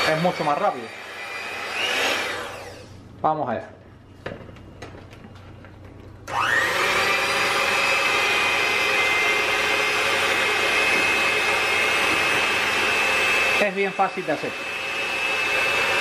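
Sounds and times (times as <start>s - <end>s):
electric hand mixer whining: 0.0s - 3.0s, 6.2s - 16.0s.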